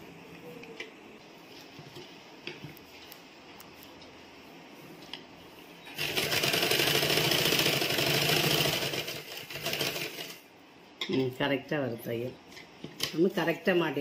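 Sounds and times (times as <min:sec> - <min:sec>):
sewing machine stitching: 0:05.9 - 0:10.4.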